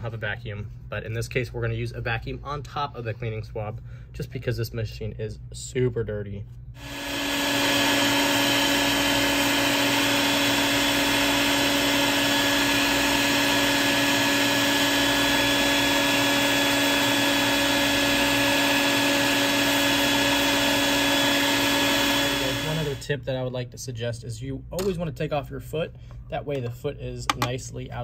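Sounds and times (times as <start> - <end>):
vacuum cleaner humming: 6.8 - 23.0.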